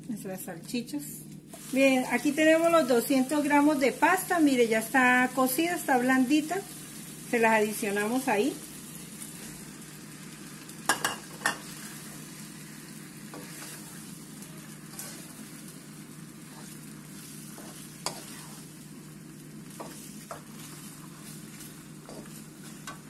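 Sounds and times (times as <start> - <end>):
sauce sizzling: 1.4 - 23.0
wooden spoon stirring pasta: 16.3 - 18.8.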